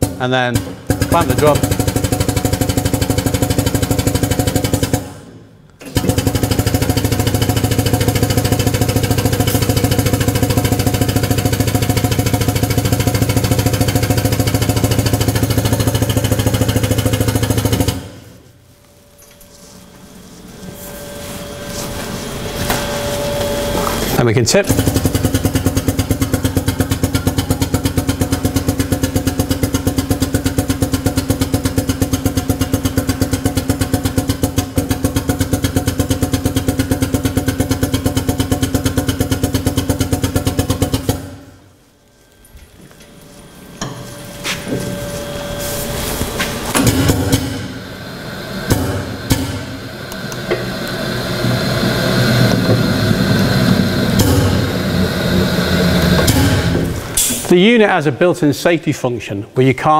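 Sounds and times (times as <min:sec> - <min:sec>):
hydraulic power pack pulsing: 0:00.0 - 0:57.6.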